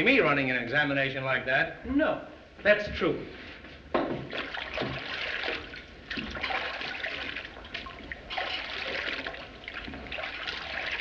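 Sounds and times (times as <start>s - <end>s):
hands scrubbing in washbasin: 4.2s - 11.0s
water running and splashing: 4.2s - 11.0s.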